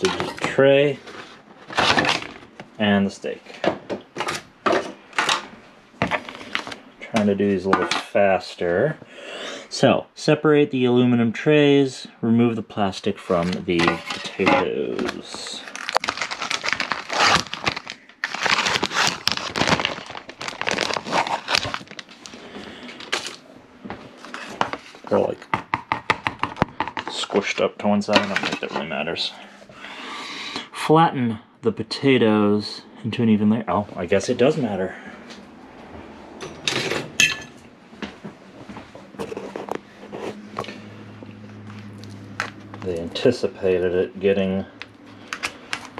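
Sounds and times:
plastic film crinkling: 14.8 - 23.4.

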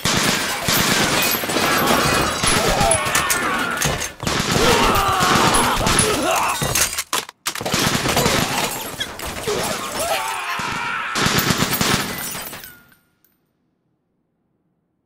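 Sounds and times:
automatic rifle fire: 0.0 - 3.0, 3.9 - 6.0, 11.2 - 12.6.

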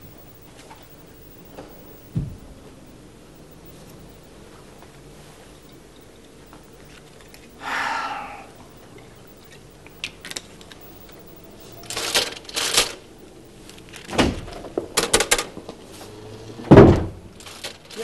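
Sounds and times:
sharp taps: 0.0 - 4.9
light clicks: 0.0 - 7.6, 8.5 - 14.1
loud thump: 1.6 - 2.5
rustling bursts: 8.6 - 14.1.

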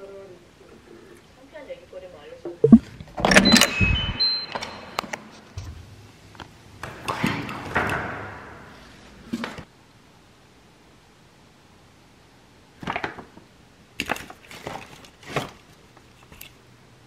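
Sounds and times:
electronic lock beeps: 2.6 - 5.0.

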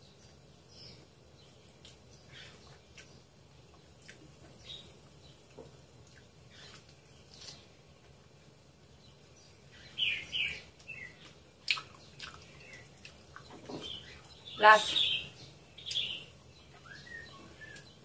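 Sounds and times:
person chewing food: 1.4 - 8.2, 11.2 - 14.3.

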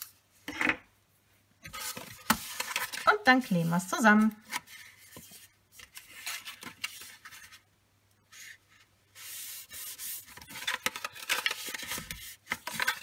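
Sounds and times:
card rustling and crackling: 1.7 - 3.2, 4.1 - 7.7, 9.2 - 13.0.

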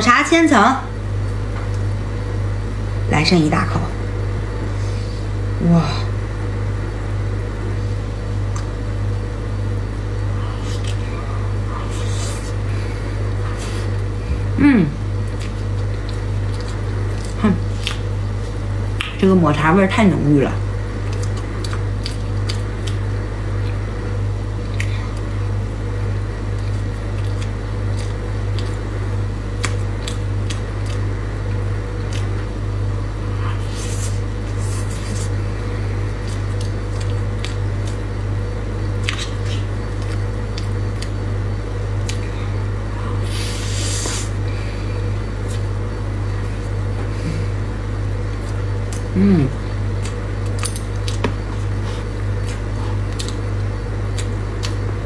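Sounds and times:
low steady hum: 0.0 - 55.0
wet squishy chewing: 21.0 - 23.8, 50.0 - 55.0.

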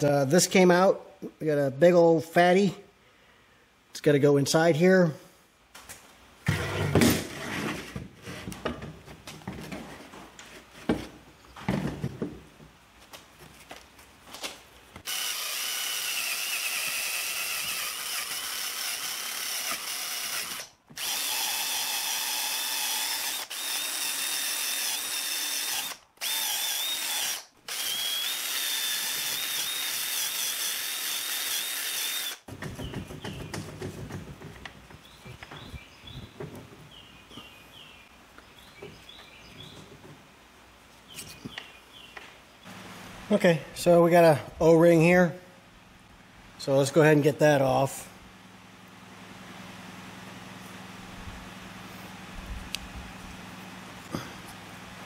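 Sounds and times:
parts knocking and clattering: 6.4 - 12.8, 32.5 - 37.0, 39.6 - 40.4
rotary tool whining: 15.0 - 32.5.

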